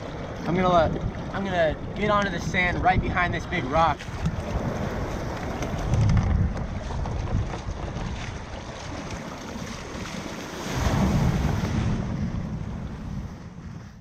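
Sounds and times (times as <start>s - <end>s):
surf washing and churning: 0.0s - 14.0s
wind buffeting the microphone: 0.0s - 14.0s
wave crashing over kayak: 4.0s - 13.2s.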